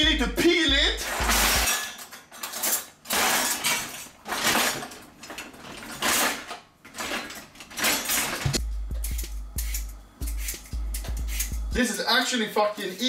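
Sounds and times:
peeler scraping a carrot: 0:09.1 - 0:11.6.

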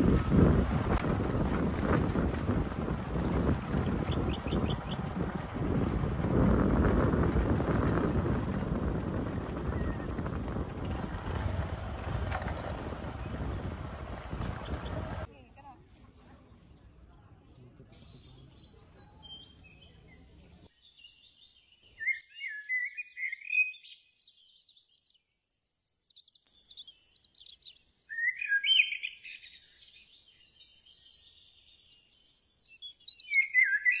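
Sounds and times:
low rumble: 0:00.0 - 0:15.3
birds singing: 0:01.8 - 0:05.9, 0:09.2 - 0:15.3, 0:16.8 - 0:34.0.

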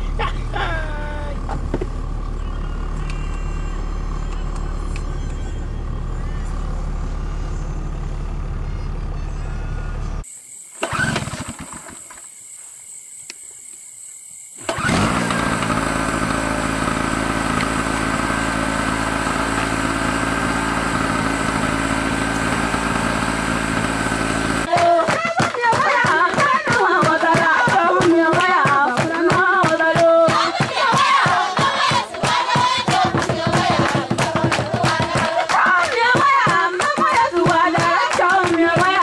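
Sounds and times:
engine running steadily: 0:00.0 - 0:25.2
group singing with music: 0:24.7 - 0:39.0.

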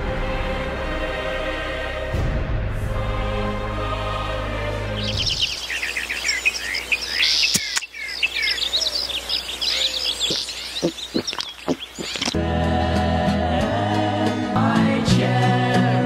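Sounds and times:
music: 0:00.0 - 0:05.5, 0:12.4 - 0:16.0
birds chirping and singing: 0:04.9 - 0:12.4.

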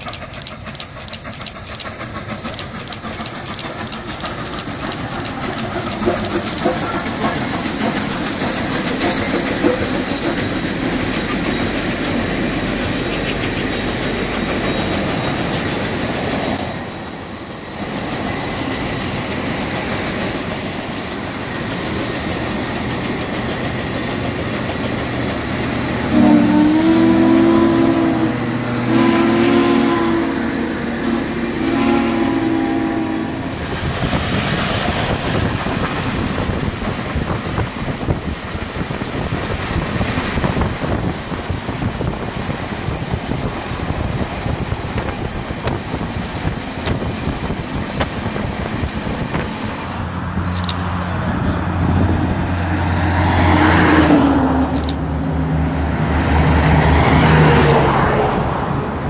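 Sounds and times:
road noise: 0:00.0 - 0:59.0
train running noise: 0:00.0 - 0:59.0
chime steam whistle: 0:07.9 - 0:12.6, 0:26.1 - 0:33.5
camera shutter clicks: 0:50.5 - 0:50.8, 0:54.8 - 0:55.0.

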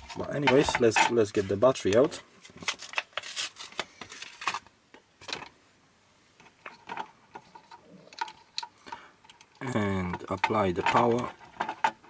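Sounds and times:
battery handling clicks and rustles: 0:06.4 - 0:12.0.

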